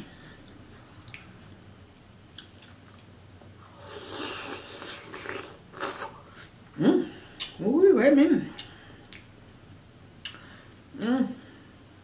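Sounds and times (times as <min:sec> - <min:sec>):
quiet chewing: 0:02.3 - 0:06.6, 0:08.5 - 0:10.5.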